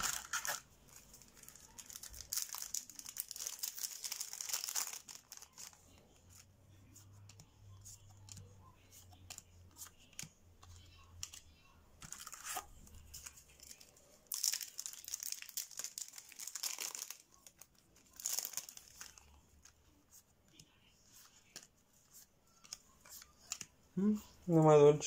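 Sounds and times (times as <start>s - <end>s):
foil wrapper crinkling and tearing: 0.0s - 5.8s, 12.1s - 19.4s.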